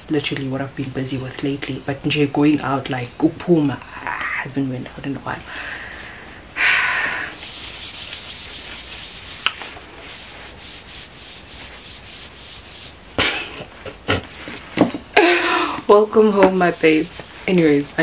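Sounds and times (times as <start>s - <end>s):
hand rubbing box surface: 7.4s - 13.0s, 16.2s - 18.0s.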